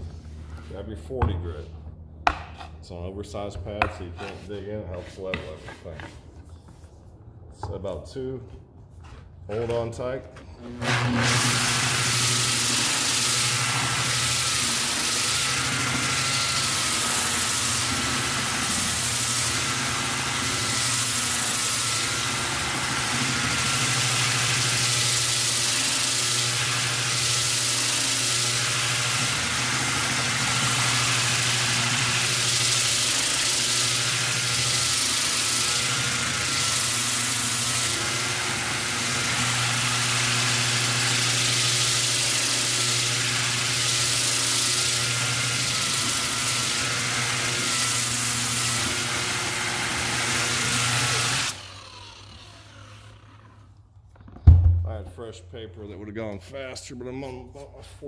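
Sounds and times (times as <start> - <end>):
rotary sander grinding wood: 10.6 - 53.9.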